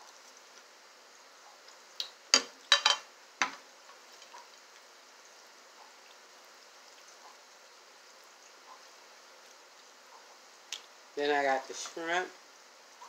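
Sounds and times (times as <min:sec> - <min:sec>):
faint background hiss: 0:00.0 - 0:13.0.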